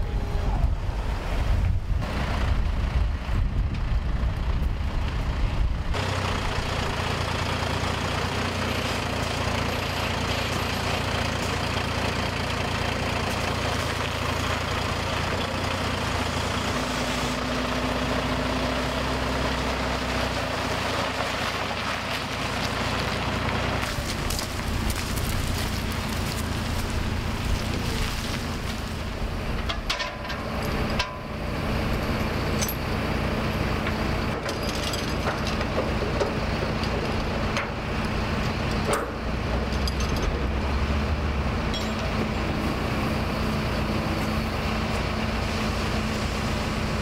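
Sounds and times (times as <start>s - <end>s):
wind buffeting microphone: 0.0s - 6.0s
truck diesel engine running: 0.0s - 47.0s.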